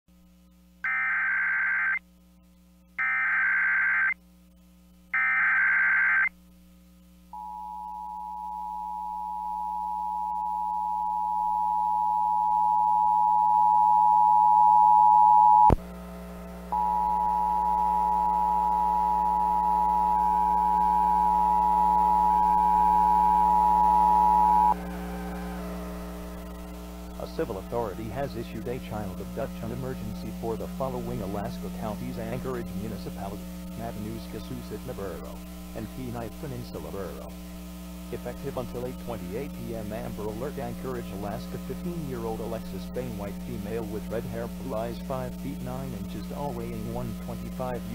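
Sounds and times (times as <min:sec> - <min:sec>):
low steady hum: 0:00.1 - 0:47.9
steady dual tone alert: 0:00.7 - 0:02.0, 0:03.0 - 0:04.2, 0:05.1 - 0:06.4, 0:07.3 - 0:47.9
data bursts: 0:16.7 - 0:37.3.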